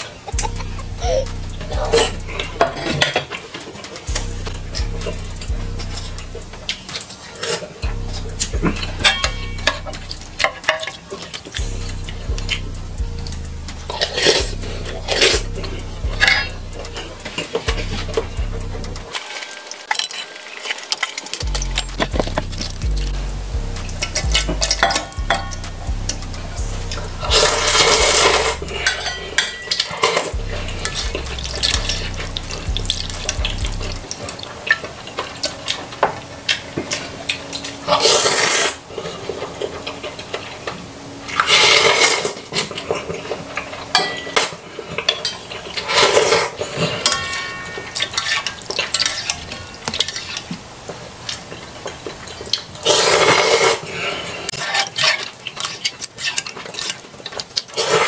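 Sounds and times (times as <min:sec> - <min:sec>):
fork clinking on steel bowl: 0:28.8 - 0:31.0, 0:43.9 - 0:44.6, 0:46.8 - 0:50.4
person slurping noodles: 0:38.0 - 0:38.8, 0:52.8 - 0:54.5.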